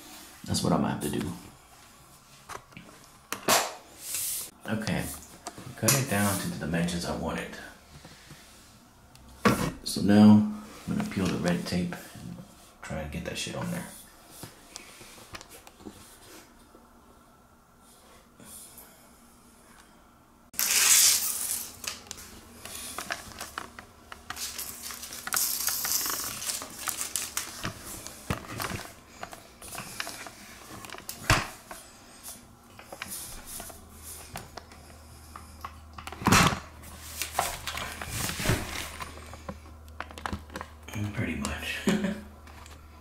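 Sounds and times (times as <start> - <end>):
tape being peeled off: 20.6 - 22.3, 23.0 - 28.2
plastic film crinkling: 20.6 - 31.2.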